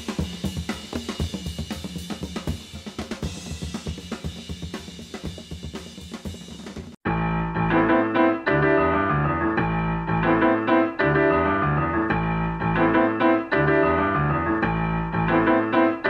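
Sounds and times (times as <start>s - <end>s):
piano instrumental music: 7.0s - 16.0s.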